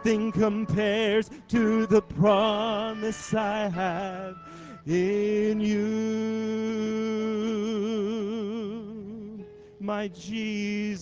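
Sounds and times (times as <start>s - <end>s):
man singing: 0.0s - 11.0s
soprano saxophone: 1.7s - 6.7s.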